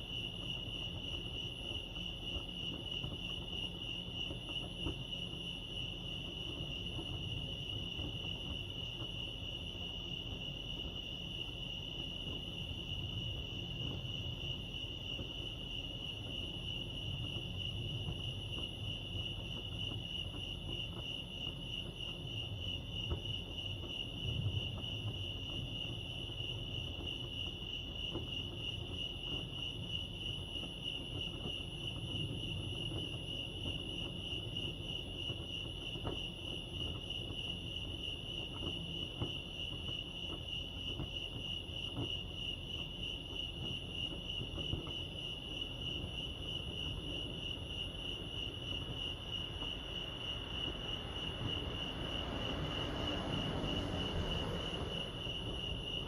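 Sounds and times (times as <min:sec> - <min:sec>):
crickets chirping: 0:00.0 - 0:56.0
low background rumble: 0:00.0 - 0:56.0.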